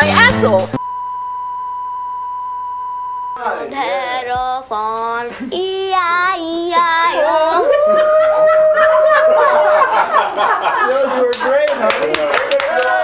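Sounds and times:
high voice singing wordless notes: 3.6s - 7.8s.

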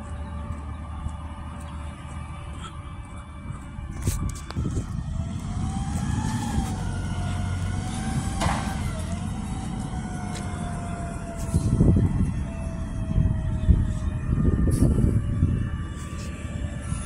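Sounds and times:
truck engine rumble with whine: 0.0s - 17.0s.

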